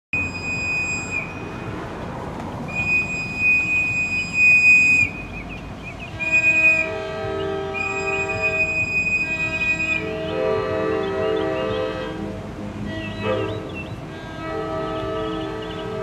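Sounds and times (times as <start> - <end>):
low steady tones: 0.2 - 16.0
train rumble: 0.2 - 16.0
locomotive horn blasts: 2.7 - 5.4, 6.0 - 16.0.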